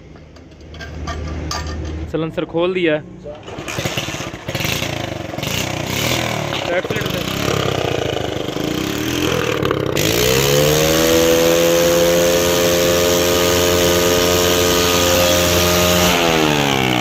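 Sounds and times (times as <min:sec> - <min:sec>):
motorcycle engine revving: 0:03.4 - 0:17.0.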